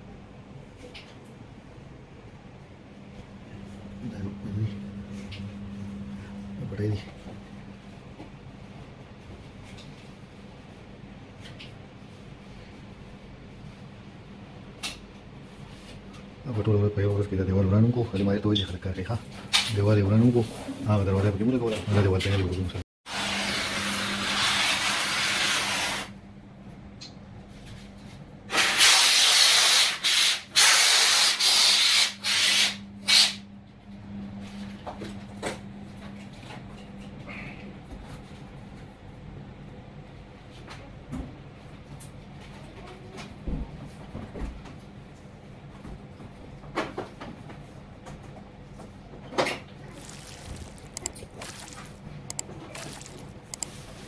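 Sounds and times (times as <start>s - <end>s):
low steady hum: 0.0s - 22.8s, 47.8s - 54.0s.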